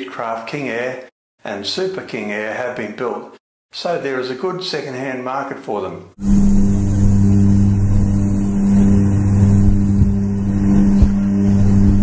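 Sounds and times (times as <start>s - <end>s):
light aircraft engine and propeller: 6.2s - 12.0s.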